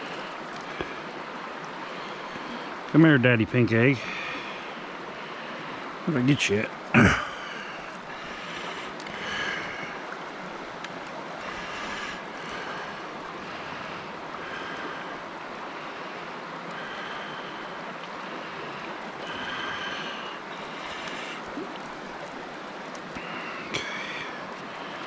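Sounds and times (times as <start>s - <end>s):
creek water rushing: 0.0s - 25.0s.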